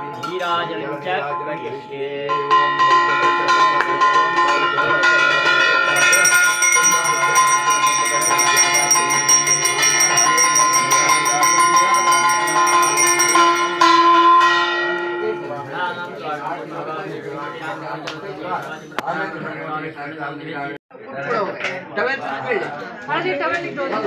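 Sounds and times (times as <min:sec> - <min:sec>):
higher brighter bell ringing: 0:01.4 - 0:16.1
hand bell ringing rapidly: 0:02.8 - 0:15.4.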